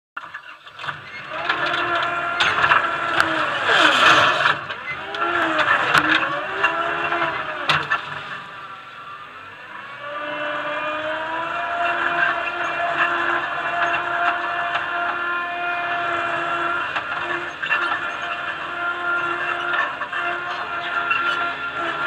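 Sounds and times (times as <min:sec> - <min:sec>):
loader engine and hydraulics: 0:00.2 - 0:22.0
bucket scraping soil: 0:00.8 - 0:07.0.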